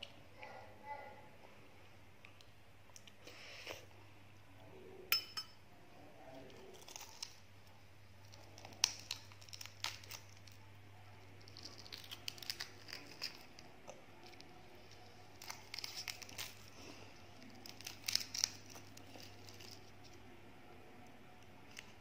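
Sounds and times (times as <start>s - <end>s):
egg shell cracking: 6.6s - 7.4s, 8.2s - 10.6s, 11.2s - 16.7s, 17.4s - 20.2s.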